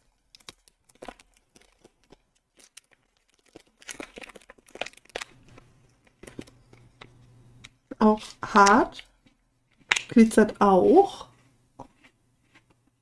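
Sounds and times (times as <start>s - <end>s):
plastic packaging crinkling: 0.0s - 10.3s.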